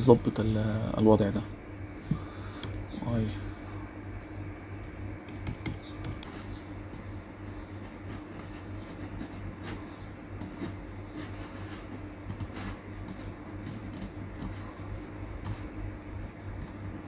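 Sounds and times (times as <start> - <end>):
steady low hum: 0.0 - 17.0
laptop keys clicking and tapping: 4.8 - 7.1, 12.2 - 14.7.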